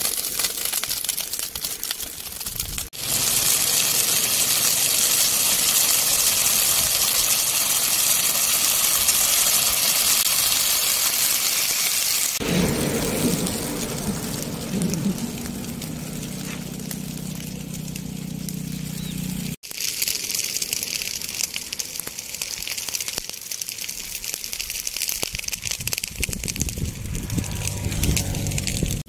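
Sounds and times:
grass fire crackling: 0.0s - 29.0s
vehicle engine humming: 3.0s - 8.4s, 12.4s - 19.6s, 26.5s - 29.0s.

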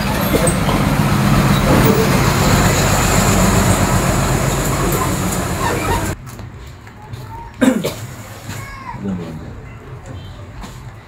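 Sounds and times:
vehicle engine running: 0.0s - 6.2s.

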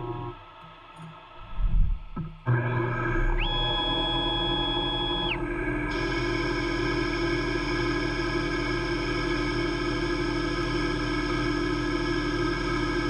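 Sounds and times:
stepper motor whine: 1.4s - 13.0s
lathe humming: 2.5s - 11.5s.

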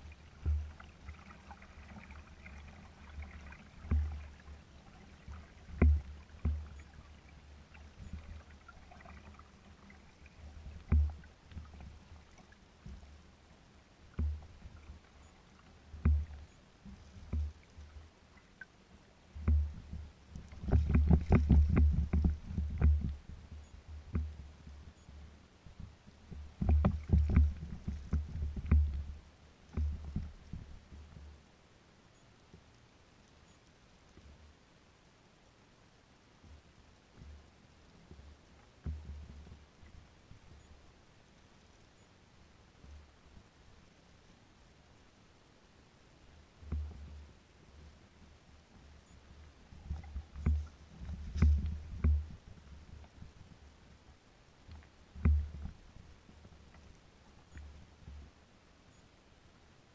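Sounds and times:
waves slapping against kayak hull: 0.2s - 6.8s, 19.4s - 23.1s.

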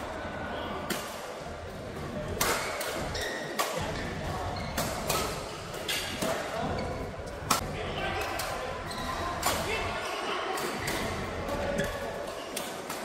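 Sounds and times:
indoor hall background noise: 0.0s - 13.0s
racket hitting shuttlecock: 2.4s - 4.0s, 4.8s - 6.5s.

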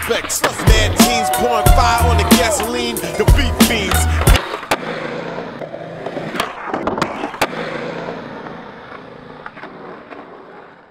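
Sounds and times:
skateboard clacks: 0.0s - 10.9s
skateboard wheels rolling on concrete: 0.0s - 10.9s.

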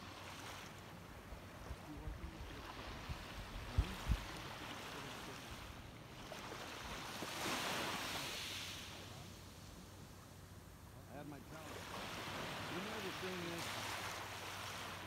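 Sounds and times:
small waves lapping on shore: 0.0s - 15.0s.

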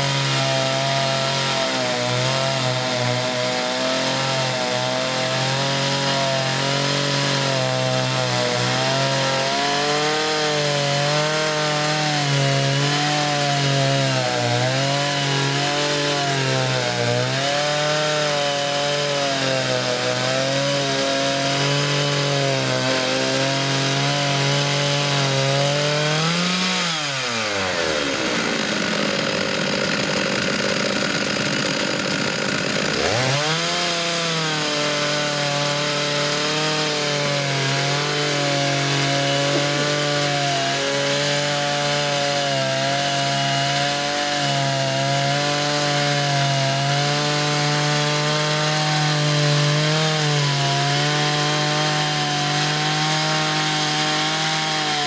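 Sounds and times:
chainsaw engines cutting timber: 0.0s - 55.0s.

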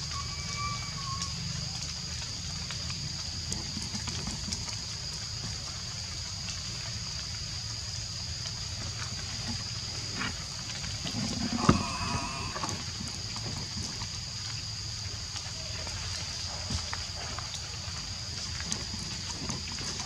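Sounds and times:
high-pitched insect drone: 0.0s - 1.8s, 11.5s - 13.0s.

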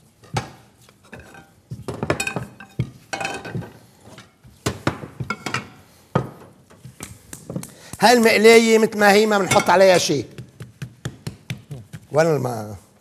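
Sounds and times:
cookware clattering on counter: 0.3s - 3.8s, 4.7s - 6.4s, 9.4s - 10.1s.

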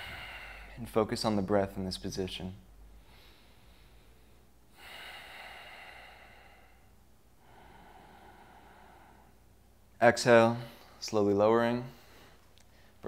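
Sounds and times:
man breathing: 0.0s - 1.0s, 2.8s - 9.7s, 11.9s - 13.0s.

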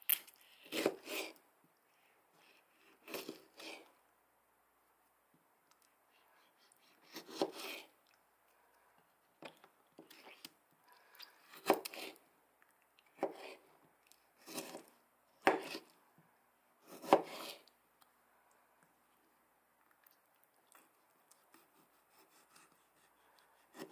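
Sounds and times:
knife cutting on cutting board: 0.6s - 1.3s, 7.0s - 7.8s, 11.5s - 12.2s, 13.2s - 13.6s, 14.5s - 14.8s, 15.4s - 15.8s, 16.9s - 17.6s.

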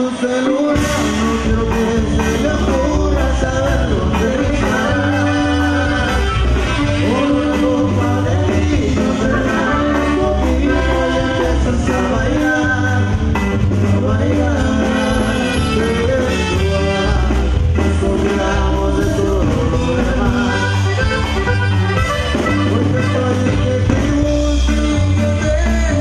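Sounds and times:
live band playing: 0.0s - 26.0s
steady bass line: 0.6s - 26.0s
button accordion: 1.2s - 12.8s, 14.6s - 18.1s, 18.7s - 26.0s
saxophone: 4.8s - 8.2s, 14.8s - 17.6s, 20.3s - 25.5s.

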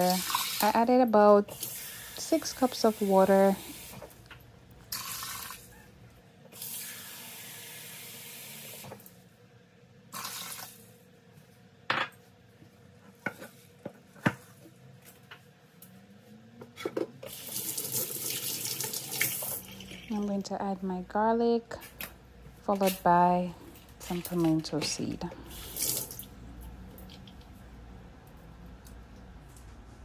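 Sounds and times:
water running from tap: 0.0s - 4.2s, 4.9s - 5.7s, 10.1s - 10.8s, 17.3s - 20.2s, 25.5s - 26.3s.

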